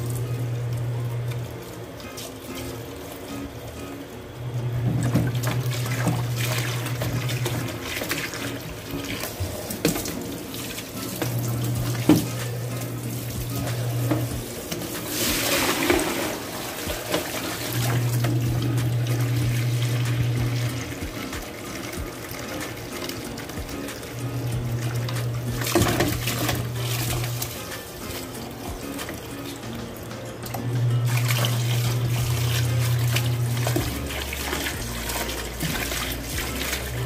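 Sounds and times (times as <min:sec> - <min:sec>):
tap water splashing into bowl: 0:04.8 - 0:29.6, 0:30.4 - 0:37.0.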